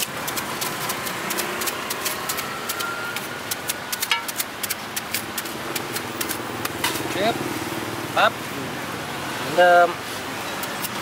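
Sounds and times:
knife slicing fruit: 0.0s - 7.4s
street traffic: 0.0s - 11.0s.

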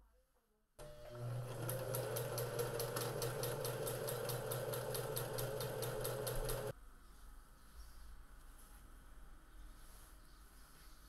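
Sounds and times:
sewing machine stitching: 0.8s - 6.7s.

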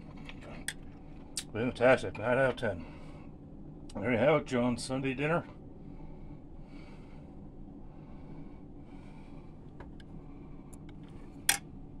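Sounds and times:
steady low hum: 0.0s - 12.0s
soft breath-like puffs: 5.8s - 11.5s.

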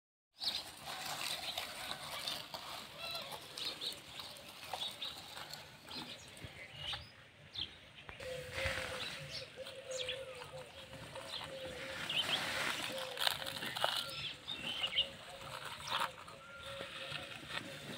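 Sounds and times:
small clicks and scraping: 0.4s - 6.5s, 12.5s - 17.9s
birds chirping: 0.4s - 17.9s.

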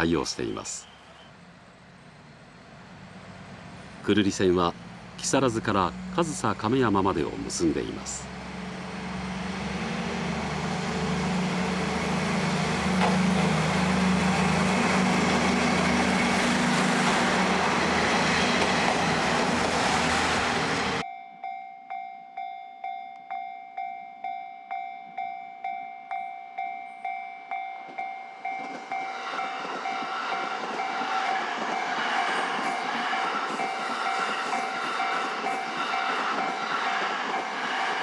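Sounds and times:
train rail noise: 0.0s - 21.0s, 26.6s - 38.0s
level crossing bell ringing: 21.0s - 29.1s.

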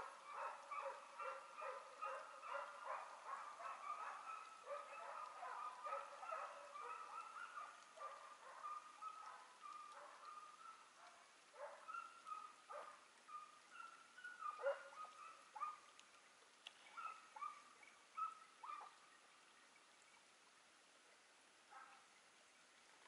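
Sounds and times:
distant hounds baying: 0.0s - 15.9s, 16.9s - 19.0s.

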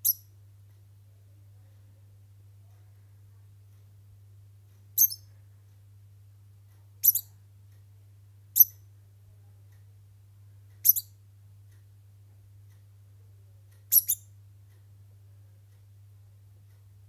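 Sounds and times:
degu squeaking: 5.0s - 5.2s, 7.0s - 7.3s, 10.8s - 11.1s, 13.9s - 14.3s.

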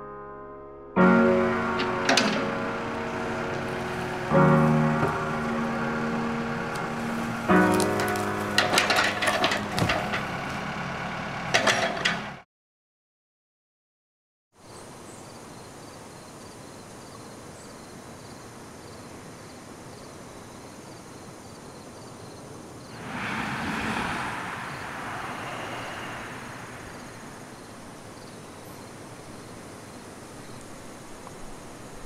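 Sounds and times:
whooshing noise: 22.9s - 28.0s.

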